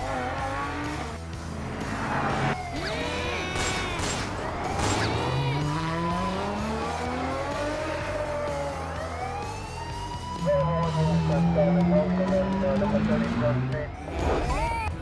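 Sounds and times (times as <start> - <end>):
background music: 0.0 - 15.0
gunshot bangs: 3.5 - 5.3.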